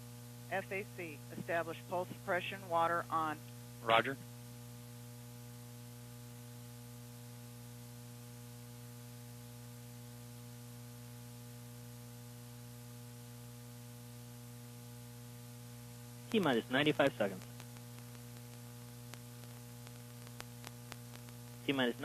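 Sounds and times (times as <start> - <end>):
electrical mains hum: 0.0 - 22.0
static hiss: 0.0 - 22.0.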